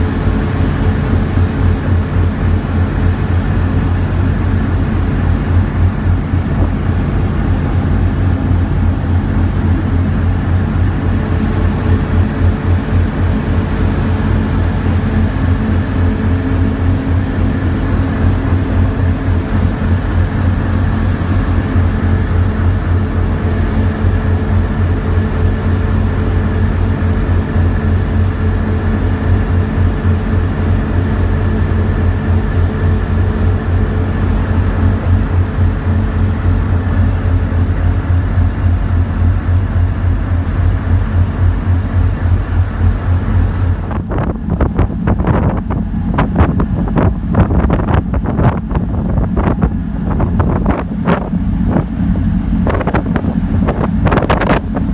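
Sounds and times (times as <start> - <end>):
diesel engines droning: 0.0 - 54.9.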